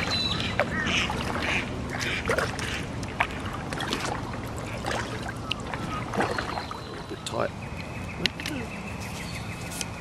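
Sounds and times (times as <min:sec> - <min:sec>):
short sharp splashes: 0:00.0 - 0:07.2
water lapping around hull: 0:00.0 - 0:08.6.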